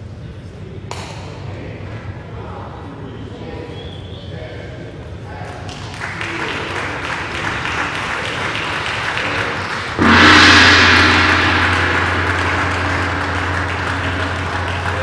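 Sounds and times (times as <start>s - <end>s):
applause: 5.4s - 10.0s, 11.5s - 15.0s
gong struck and ringing: 10.0s - 15.0s.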